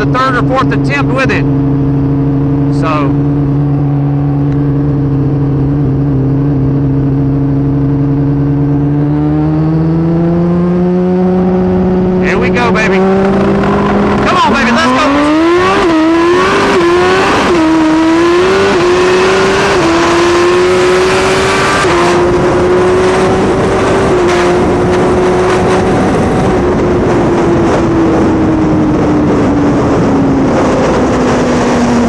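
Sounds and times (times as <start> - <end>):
motorcycle engine accelerating: 0.0 - 32.0
wind rush: 10.9 - 20.0.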